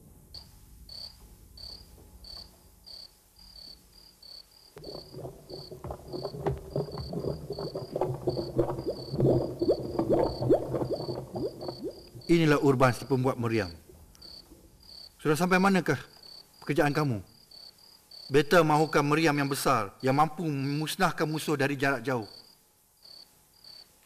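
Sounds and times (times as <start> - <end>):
crickets chirping: 0.3 - 24.0
crackles and pops: 4.7 - 14.6.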